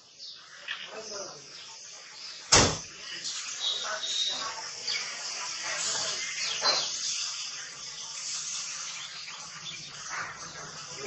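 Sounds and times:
faint clicks and chirps: 0.0s - 11.0s
outdoor background hiss: 0.0s - 11.0s.

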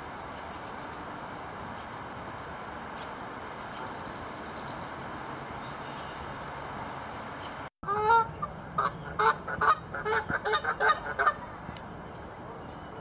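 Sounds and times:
geese honking loudly: 7.8s - 11.5s.

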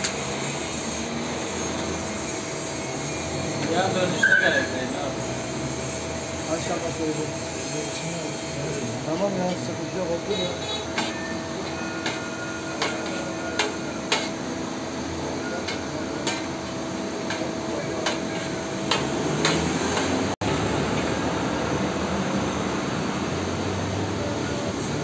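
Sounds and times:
metal spatula scraping on griddle: 0.0s - 14.4s
steady background hum: 0.0s - 20.4s.

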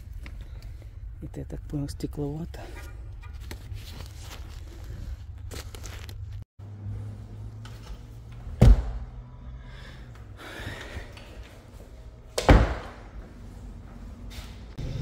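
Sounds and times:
low hum: 13.0s - 15.0s.

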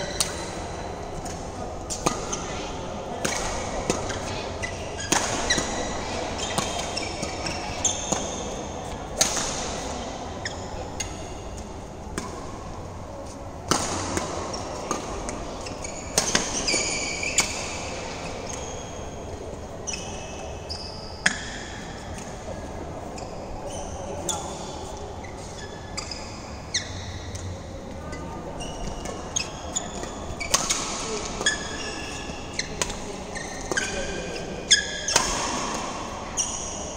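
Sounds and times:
rackets striking shuttlecock: 0.1s - 0.6s, 3.2s - 4.3s, 5.0s - 9.9s, 13.6s - 15.5s, 30.0s - 31.8s, 32.7s - 34.1s, 34.7s - 36.7s
sneakers squeaking on court floor: 1.9s - 9.0s, 13.9s - 19.2s, 19.9s - 21.4s, 23.2s - 27.4s, 28.1s - 36.9s.

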